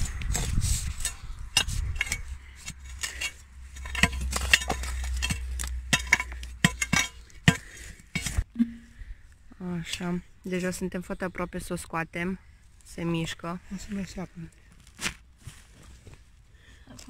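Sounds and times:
metal bar clinking in stony soil: 0.1 - 8.4.

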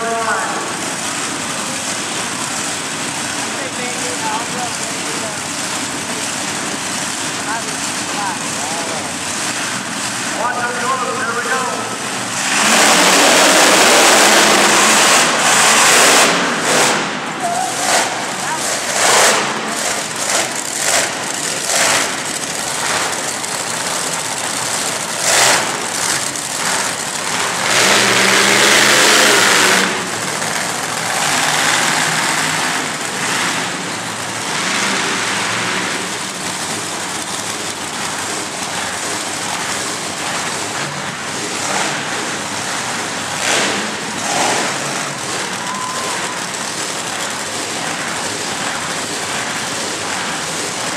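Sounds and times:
truck engines revving: 0.0 - 50.9.

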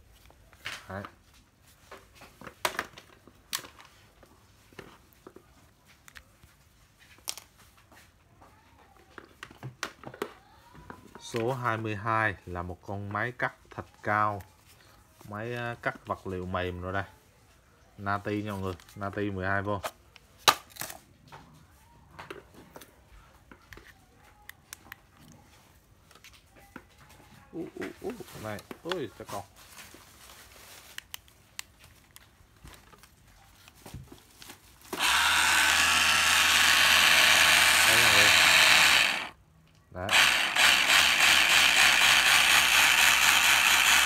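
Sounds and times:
power tools clicking and knocking: 34.9 - 39.4, 40.1 - 44.0.

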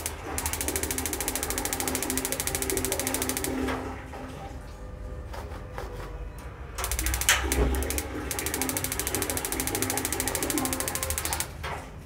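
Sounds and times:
igniter sparks clicking: 0.0 - 3.6, 6.8 - 11.5.

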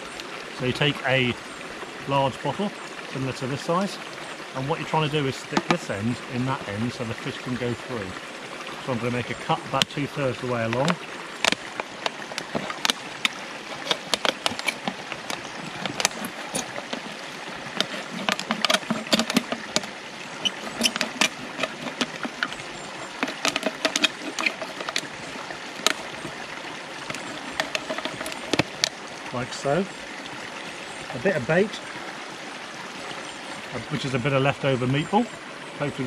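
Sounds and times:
stream rushing: 0.0 - 36.0
knife cutting plastic bottle: 12.4 - 26.4.

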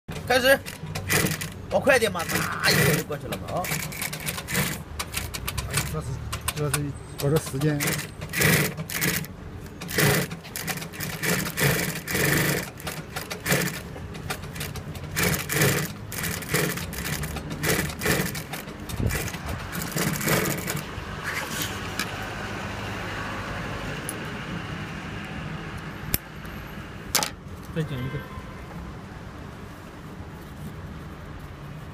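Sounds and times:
sewing machine stitching: 0.1 - 6.0, 7.2 - 20.9.

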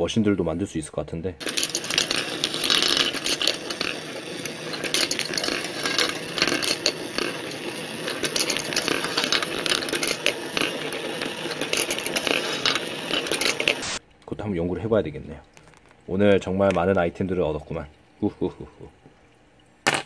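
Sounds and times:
steel balls rolling and clicking: 1.4 - 14.0.

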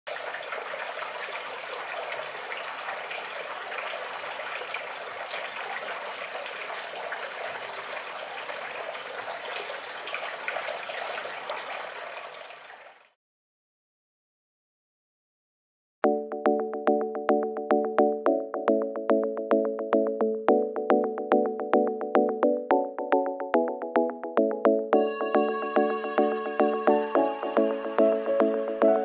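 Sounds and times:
fountain water splashing: 0.1 - 13.2.

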